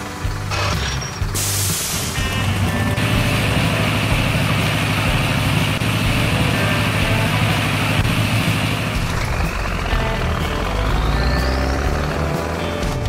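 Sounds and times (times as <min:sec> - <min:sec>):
background music: 0:00.0 - 0:13.0
cartoon excavator engine effect: 0:00.0 - 0:13.0
rising whistle: 0:10.6 - 0:12.2.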